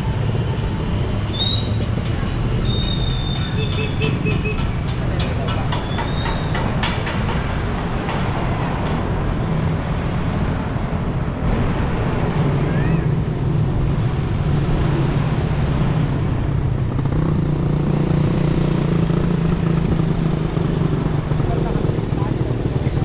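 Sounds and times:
wind and road rumble: 0:00.0 - 0:23.0
brief high squeals: 0:02.6 - 0:03.6.

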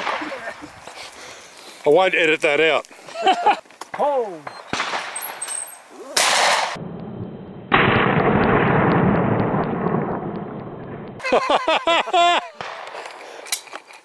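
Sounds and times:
shotgun shots: 0:04.5 - 0:05.4, 0:06.2 - 0:06.8, 0:07.7 - 0:11.0.

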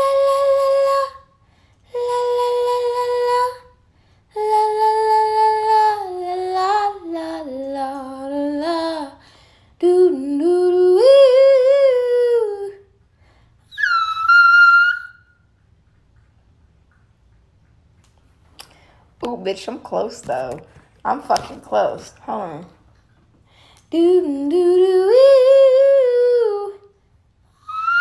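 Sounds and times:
woman singing wordless notes: 0:00.0 - 0:01.3, 0:01.9 - 0:03.7, 0:04.3 - 0:09.2, 0:09.8 - 0:12.8, 0:23.9 - 0:26.9.

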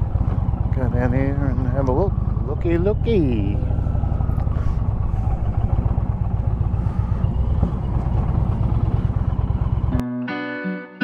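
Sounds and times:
motorcycle engine rumbling: 0:00.0 - 0:10.0.

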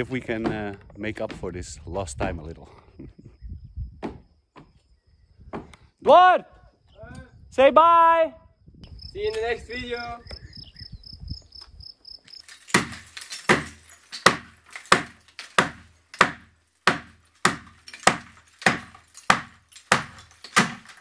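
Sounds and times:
hammer striking brick: 0:12.8 - 0:20.9.

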